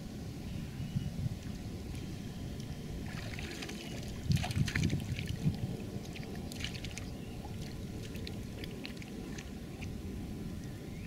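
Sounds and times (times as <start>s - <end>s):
mud and water splashing: 1.4s - 10.1s.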